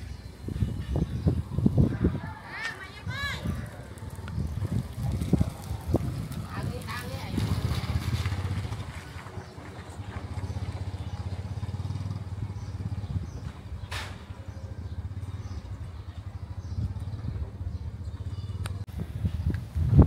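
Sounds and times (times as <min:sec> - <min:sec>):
engine running: 0:04.0 - 0:18.9.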